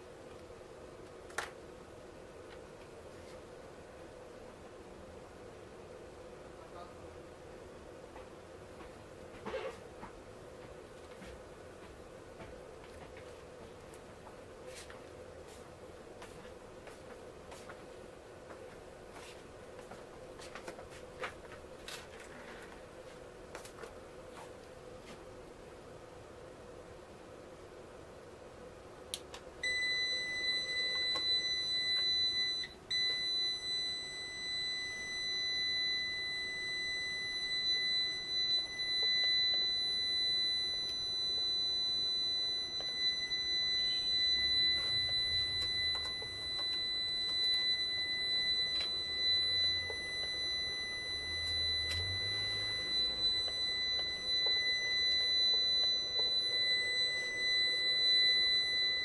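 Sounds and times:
high-pitched electronic buzzer: 29.6s - 59.0s.

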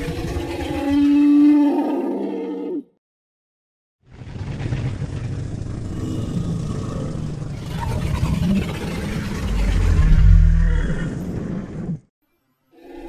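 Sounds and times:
dinosaur roar: 0.0s - 2.9s, 5.6s - 11.6s.

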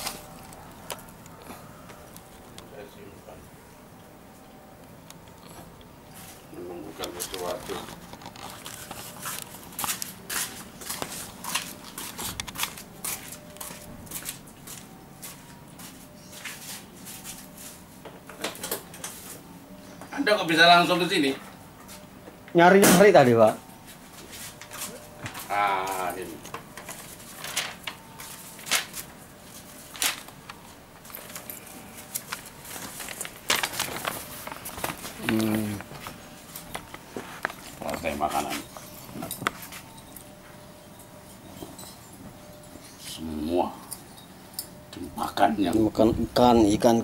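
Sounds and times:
rustles and clicks: 23.8s - 40.4s.

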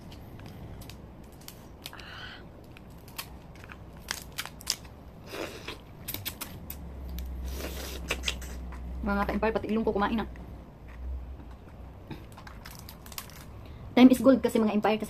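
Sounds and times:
crab shell cracking: 0.4s - 5.0s, 11.4s - 13.6s.

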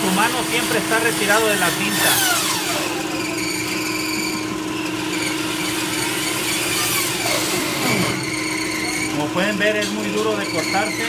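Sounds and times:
band saw motor humming: 0.0s - 11.0s
saw blade cutting through bone: 5.1s - 9.1s.

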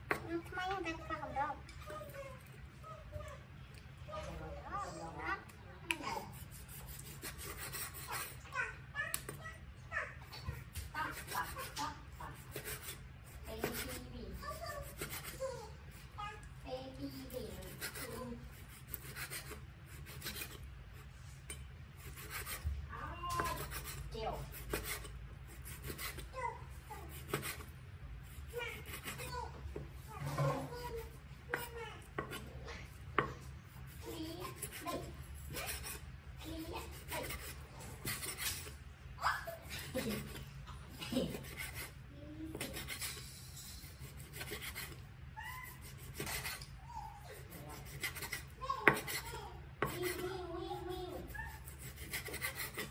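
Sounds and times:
knife slicing raw meat: 12.4s - 14.0s, 17.6s - 21.1s, 23.3s - 26.3s, 27.1s - 29.3s, 36.8s - 38.8s, 41.2s - 43.2s, 43.9s - 50.3s, 51.1s - 52.9s
cleaver slicing meat on board: 27.1s - 27.7s, 30.3s - 32.5s, 45.6s - 46.7s, 47.4s - 50.2s.

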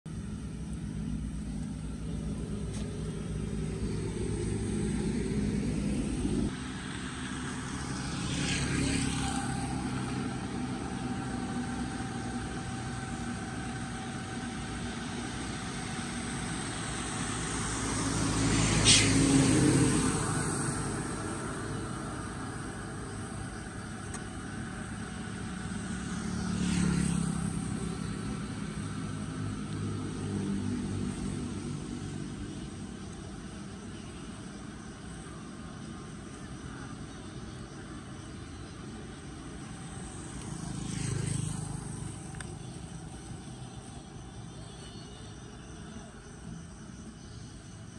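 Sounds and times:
traffic rumble: 0.1s - 47.9s
vehicles passing: 0.1s - 47.9s
tyres hissing on wet road: 2.6s - 43.9s.

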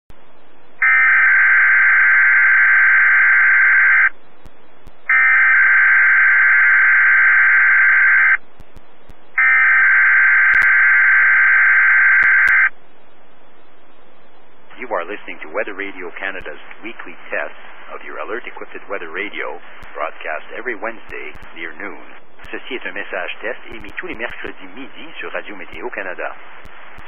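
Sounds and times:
radio hiss: 14.7s - 27.0s.

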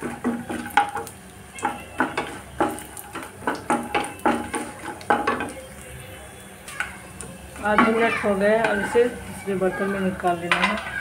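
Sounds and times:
wooden spatula scraping a pan: 7.6s - 11.0s.

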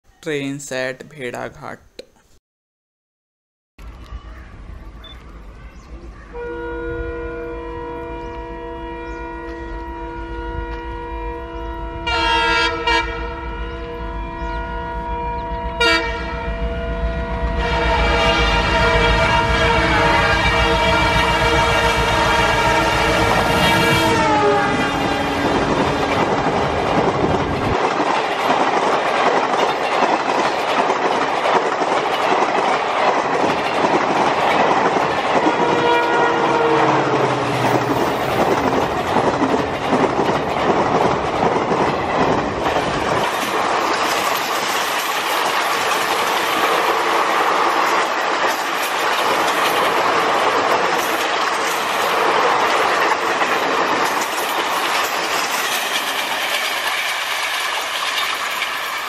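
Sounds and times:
rush of passing train coaches: 3.8s - 59.0s
locomotive horn: 6.3s - 26.4s, 35.5s - 37.9s
train wheels clattering on rail joints: 24.6s - 35.9s, 37.5s - 59.0s.

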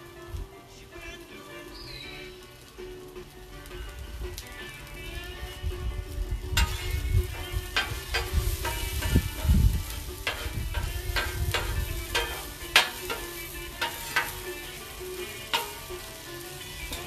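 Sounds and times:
onions sizzling on griddle: 0.0s - 17.0s
spatula clacking on metal: 6.6s - 17.0s.

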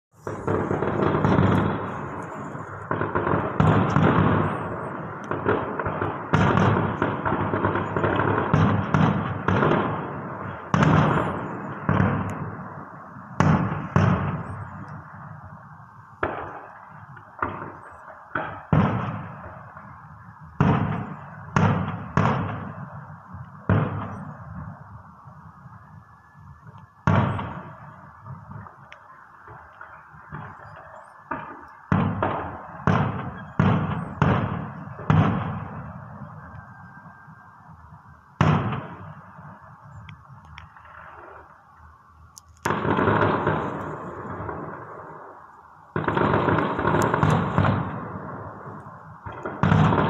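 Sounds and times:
firework shells bursting: 0.2s - 12.7s, 42.3s - 50.0s.

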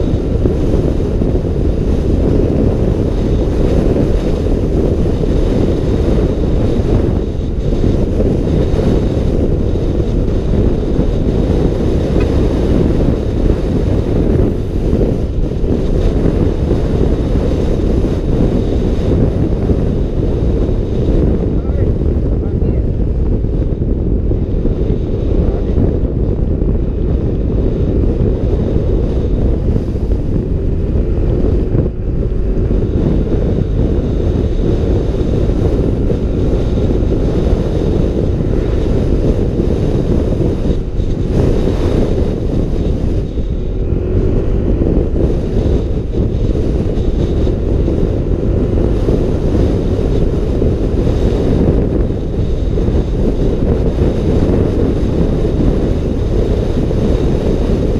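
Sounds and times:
scooter engine and road noise: 0.0s - 57.9s
wind buffeting microphone: 0.0s - 57.9s.

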